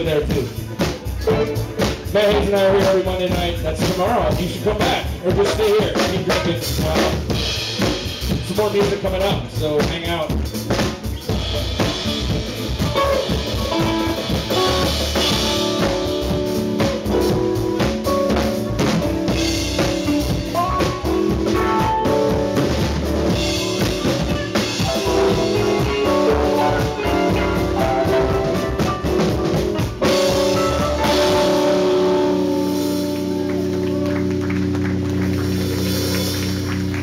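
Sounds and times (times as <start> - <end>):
drum kit: 0.0 - 37.0
electric bass: 0.0 - 37.0.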